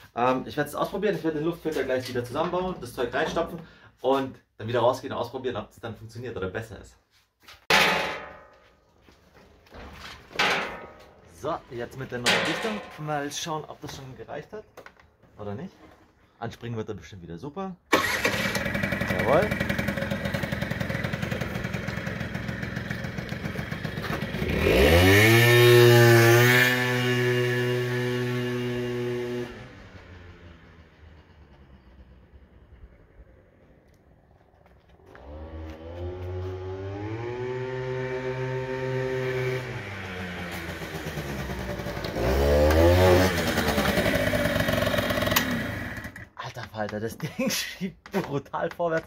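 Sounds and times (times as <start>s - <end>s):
scooter engine idling and revving: 18.0s - 33.8s, 35.0s - 46.4s.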